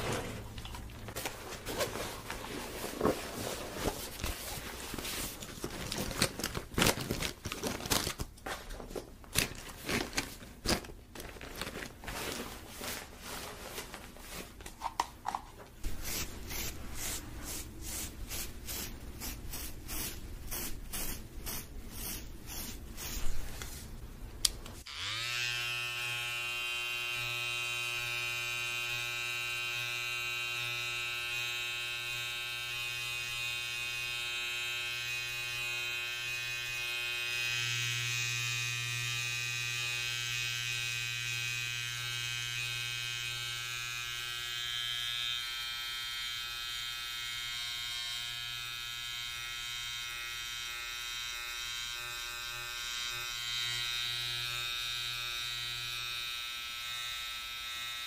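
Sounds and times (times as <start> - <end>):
scratchy strokes: 15.8 - 23.9
electric hair trimmer buzzing: 24.8 - 58.0.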